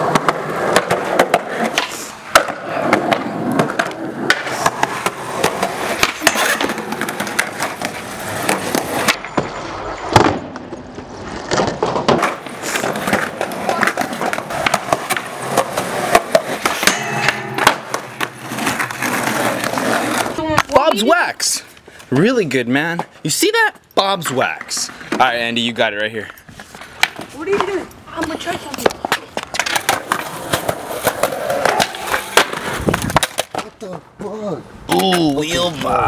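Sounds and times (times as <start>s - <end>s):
skateboard clacks: 0.0s - 20.8s, 26.6s - 33.8s
skateboards rolling on concrete: 0.0s - 36.0s.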